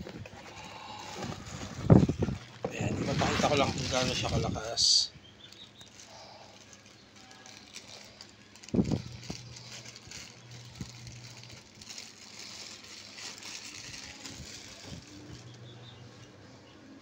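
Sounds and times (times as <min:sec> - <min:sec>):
plastic bag crinkling in fan airflow: 0:00.0 - 0:16.4
low steady hum: 0:00.0 - 0:17.0.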